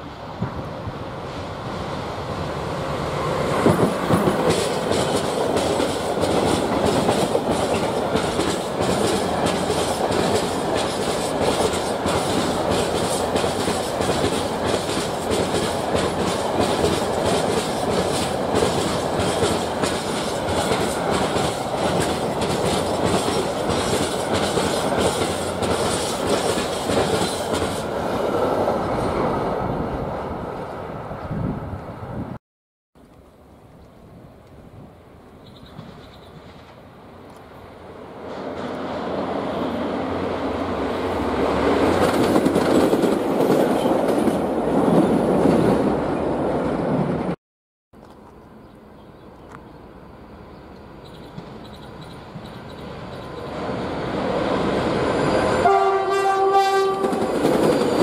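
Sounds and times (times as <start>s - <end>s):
freight train passing: 0.0s - 32.4s, 33.9s - 47.4s, 48.0s - 58.0s
wheels clacking over rail joints: 3.5s - 28.0s, 41.6s - 45.8s.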